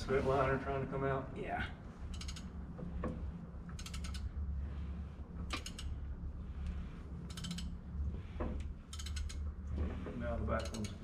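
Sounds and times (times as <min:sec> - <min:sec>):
steady low hum: 0:00.0 - 0:11.0
socket ratchet clicking: 0:02.1 - 0:02.5, 0:03.7 - 0:04.3, 0:05.5 - 0:06.0, 0:07.2 - 0:07.8, 0:08.8 - 0:09.4, 0:10.6 - 0:11.0.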